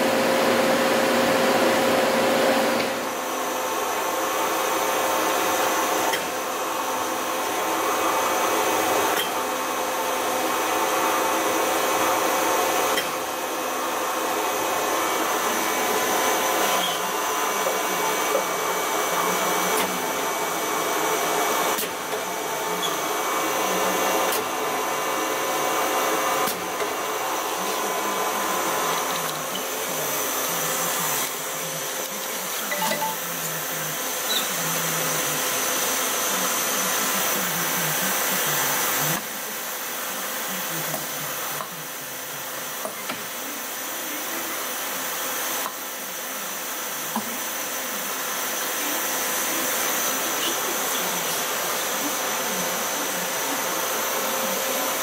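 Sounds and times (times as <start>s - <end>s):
machinery whir and hiss: 0.0s - 55.0s.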